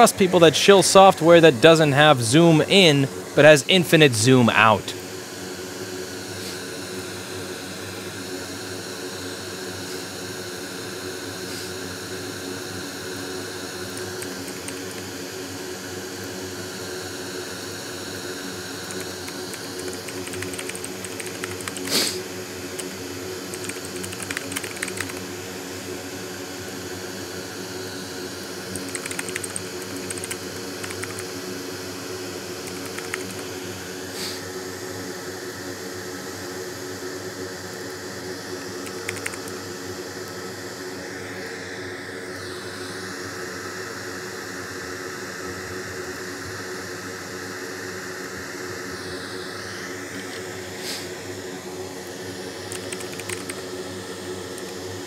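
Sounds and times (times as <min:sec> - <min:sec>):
extractor fan humming: 0:12.9 - 0:16.7, 0:18.5 - 0:25.4, 0:27.7 - 0:34.1, 0:37.7 - 0:40.3
keyboard typing: 0:14.0 - 0:15.1, 0:18.9 - 0:21.9, 0:23.5 - 0:25.2, 0:28.7 - 0:31.3, 0:32.6 - 0:33.4, 0:38.8 - 0:39.6, 0:52.7 - 0:53.6.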